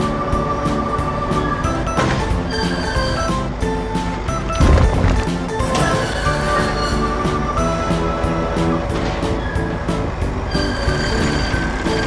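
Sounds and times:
background music with held notes: 0:00.0 - 0:12.0
short crash: 0:04.6 - 0:06.0.

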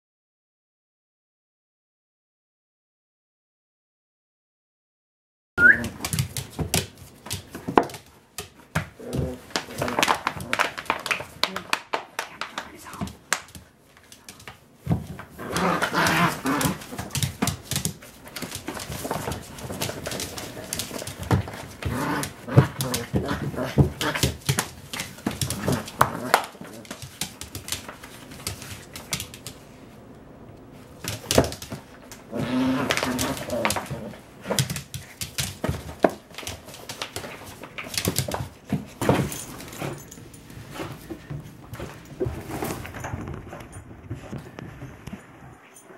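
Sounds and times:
claws scuffling on vinyl floor: 0:05.8 - 0:30.0, 0:30.6 - 0:45.5
small dog growling: 0:15.4 - 0:16.9, 0:32.3 - 0:34.2.

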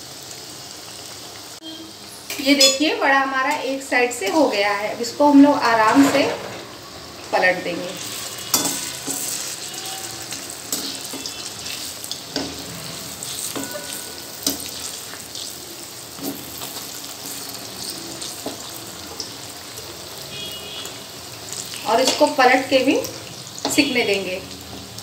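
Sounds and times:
food deep-frying in oil: 0:00.0 - 0:25.0
metal spoon clinking on pan: 0:02.3 - 0:04.4, 0:08.4 - 0:12.6, 0:13.3 - 0:15.0.

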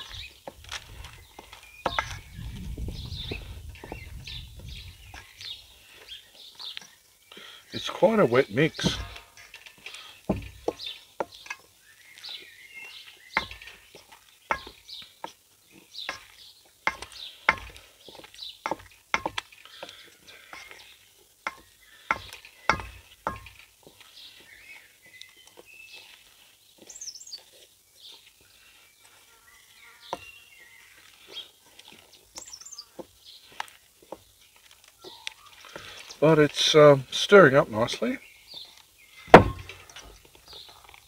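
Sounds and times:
dough squelching: 0:13.0 - 0:29.3.

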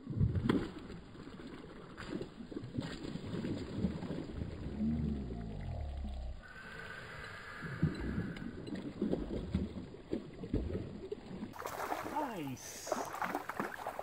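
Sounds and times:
fish splashing at water surface: 0:06.6 - 0:14.0.

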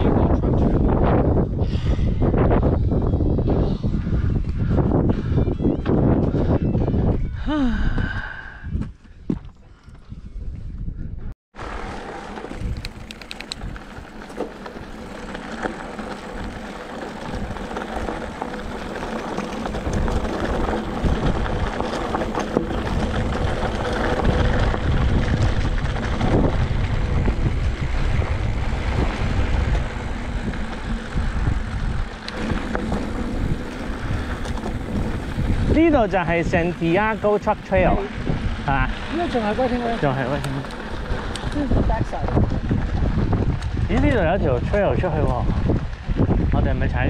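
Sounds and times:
wind buffeting microphone: 0:00.0 - 0:47.0
bike rolling on wet dirt: 0:11.6 - 0:47.0.

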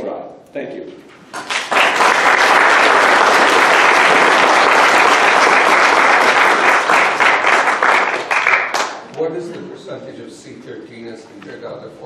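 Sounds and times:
audience applauding: 0:01.3 - 0:09.1.

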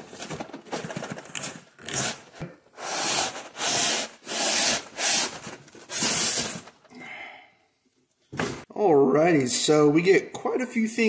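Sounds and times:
packing foam scraping cardboard: 0:00.0 - 0:06.8.

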